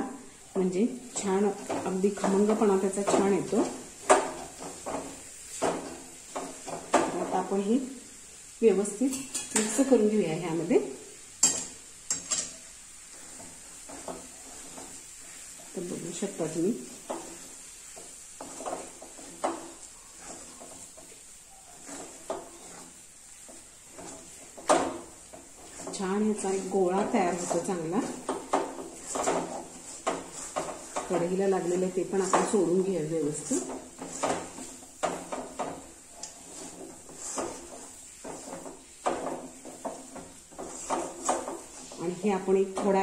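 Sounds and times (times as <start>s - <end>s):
wooden spatula scraping dough in pan: 0.3s - 43.0s
spatula knocking against pan: 33.5s - 41.8s.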